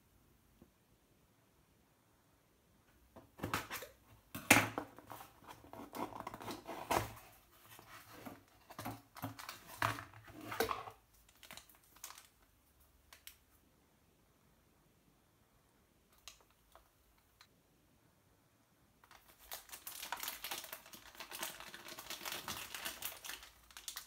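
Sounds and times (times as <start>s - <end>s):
plastic wrap crinkling: 4.9s - 12.4s, 19.0s - 24.0s.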